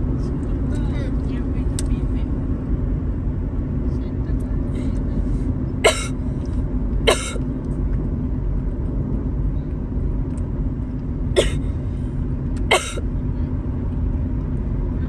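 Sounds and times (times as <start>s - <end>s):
car cabin rumble: 0.0s - 15.0s
sharp cough-like sounds: 5.8s - 6.2s, 7.1s - 7.4s, 11.4s - 11.6s, 12.7s - 13.0s.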